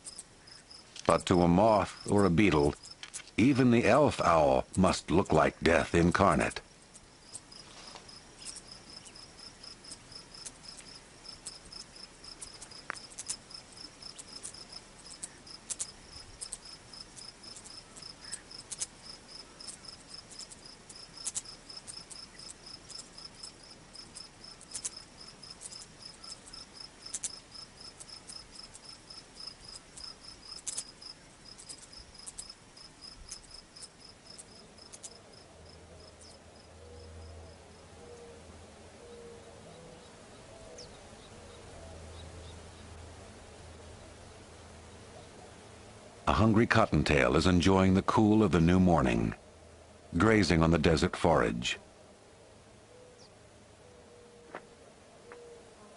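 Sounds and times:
crickets chirping: 0:00.0 - 0:46.5
lower pulsing insect call: 0:00.0 - 0:55.9
sharp clicks: 0:09.9 - 0:13.4, 0:14.1 - 0:19.0, 0:19.6 - 0:23.2, 0:24.1 - 0:28.9, 0:29.6 - 0:32.6, 0:33.2 - 0:35.2.

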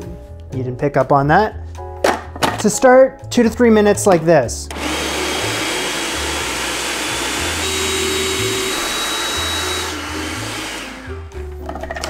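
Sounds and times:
food processor motor running: 0:04.7 - 0:11.4.

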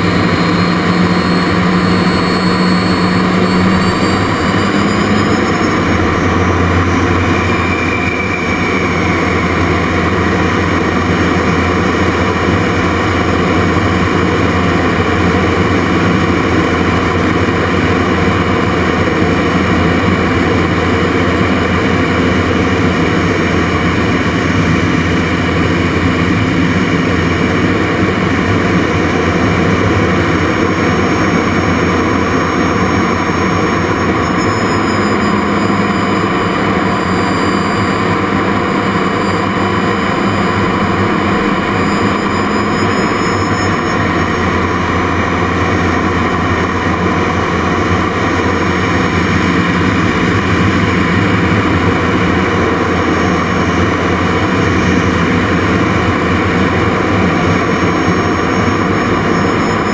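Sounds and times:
turbojet roar with whine: 0:00.0 - 0:59.9.

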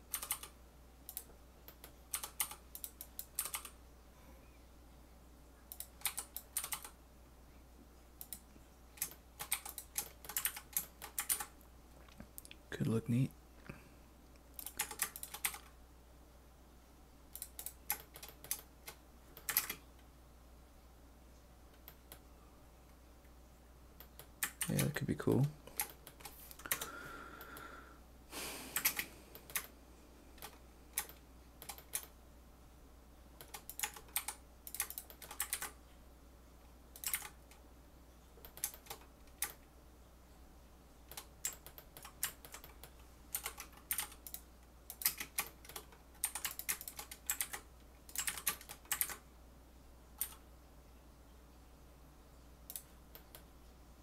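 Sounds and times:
computer keyboard typing: 0:00.0 - 0:03.8, 0:05.7 - 0:07.0, 0:08.2 - 0:08.4, 0:09.0 - 0:11.6, 0:14.5 - 0:15.7, 0:17.3 - 0:19.8, 0:24.0 - 0:27.5, 0:28.8 - 0:29.7, 0:30.4 - 0:32.2, 0:33.4 - 0:35.8, 0:36.9 - 0:37.6, 0:38.4 - 0:39.6, 0:41.1 - 0:49.2, 0:50.2 - 0:50.4
room fan humming: 0:00.0 - 0:54.0.

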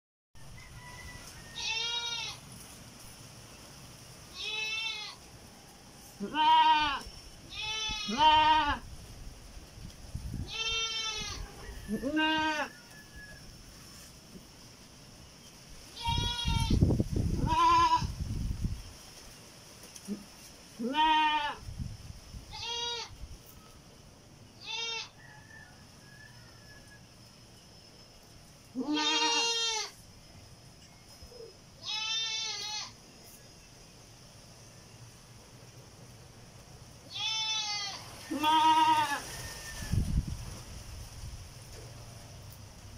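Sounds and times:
goat bleating: 0:01.6 - 0:02.4, 0:04.3 - 0:05.2, 0:06.2 - 0:08.8, 0:10.4 - 0:12.7, 0:17.4 - 0:18.1, 0:20.8 - 0:21.6, 0:22.5 - 0:23.1, 0:24.6 - 0:25.2, 0:28.7 - 0:30.0, 0:31.8 - 0:33.0, 0:37.1 - 0:39.2.

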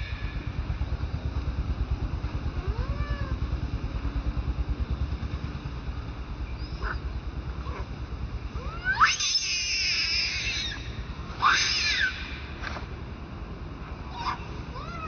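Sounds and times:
infant monkey whimpering: 0:02.5 - 0:03.4, 0:06.6 - 0:07.9, 0:08.6 - 0:10.8, 0:14.1 - 0:15.0.

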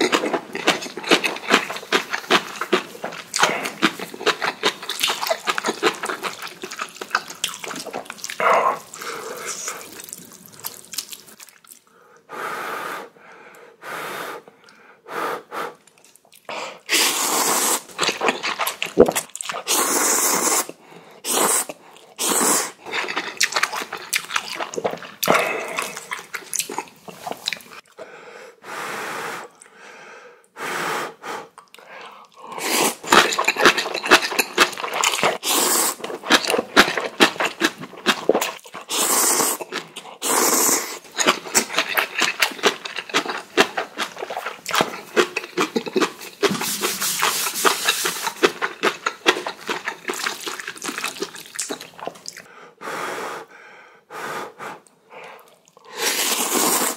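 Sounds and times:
chewing: 0:00.0 - 0:11.9, 0:15.8 - 0:28.0, 0:31.6 - 0:52.5, 0:55.2 - 0:56.9
slurping noodles: 0:00.0 - 0:13.2, 0:16.5 - 0:28.0, 0:30.7 - 0:52.5, 0:54.2 - 0:56.9
hissing breaths or sniffs: 0:12.0 - 0:15.8, 0:28.0 - 0:33.0, 0:52.5 - 0:56.9.

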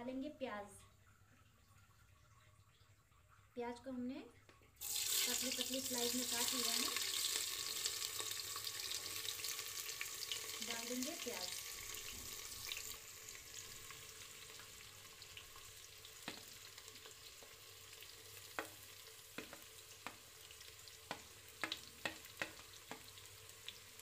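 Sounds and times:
onions sizzling in oil: 0:04.8 - 0:24.0
spatula clicking on plate: 0:21.1 - 0:23.1.

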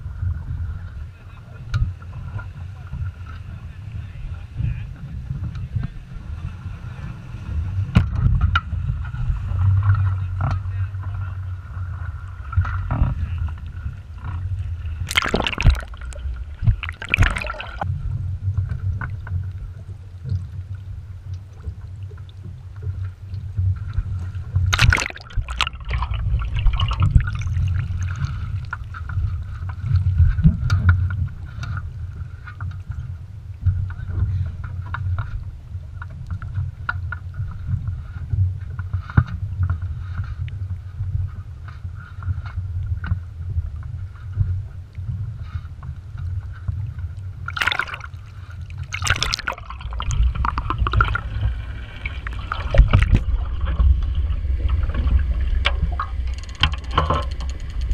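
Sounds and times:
steady low rumble: 0:00.0 - 0:57.9
water splashing and gurgling: 0:11.8 - 0:31.9, 0:46.4 - 0:57.9.

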